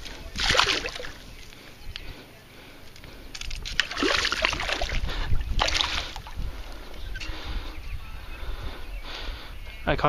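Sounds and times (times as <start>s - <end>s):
wind rumbling on microphone: 0.0s - 10.0s
fish splashing in water: 0.3s - 1.2s, 3.4s - 6.4s.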